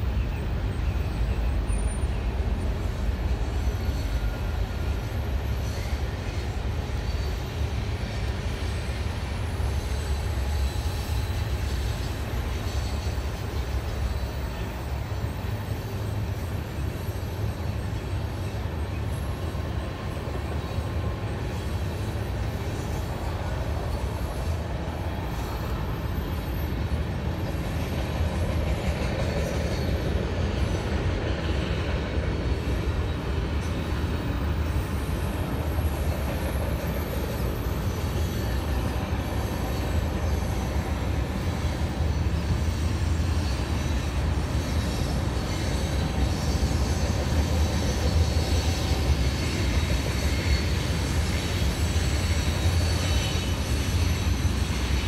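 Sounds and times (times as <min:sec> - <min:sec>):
train cars rumbling: 0:00.0 - 0:55.0
wheel squeal: 0:32.7 - 0:55.0.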